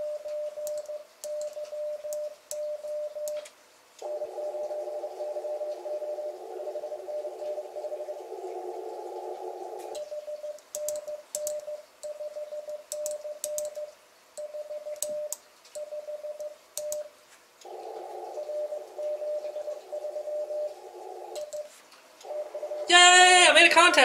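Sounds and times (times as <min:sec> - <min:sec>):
keying clicks: 0:00.6 - 0:03.5, 0:10.6 - 0:17.8, 0:21.4 - 0:22.5
morse code tone: 0:04.0 - 0:08.4, 0:10.0 - 0:17.1, 0:18.4 - 0:20.8, 0:21.5 - 0:23.6.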